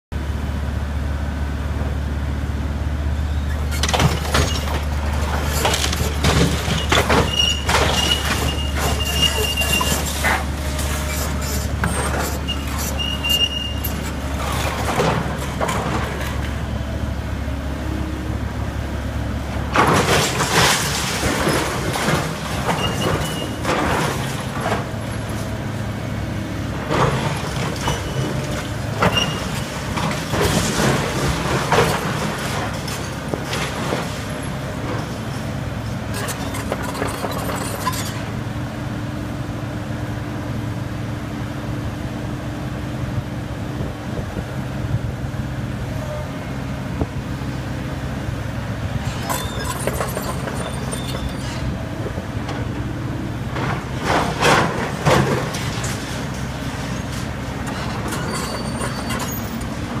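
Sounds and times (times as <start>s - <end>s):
excavator diesel engine droning: 0.2s - 60.0s
building debris crashing: 3.8s - 13.1s, 19.6s - 25.5s, 26.8s - 35.4s, 53.5s - 60.0s
high-pitched squeals: 5.4s - 14.2s.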